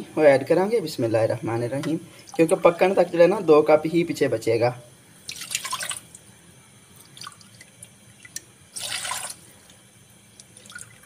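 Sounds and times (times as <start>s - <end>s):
water pouring into saucepan: 5.3s - 6.1s, 7.2s - 9.4s, 10.4s - 11.0s
water dripping: 7.0s - 9.4s, 10.3s - 11.0s.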